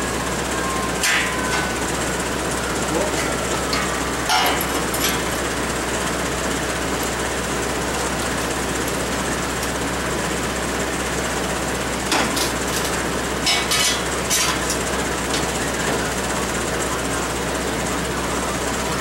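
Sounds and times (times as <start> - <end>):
machine hum: 0.0 - 19.0
metallic clanks of steel tubing: 3.2 - 5.2.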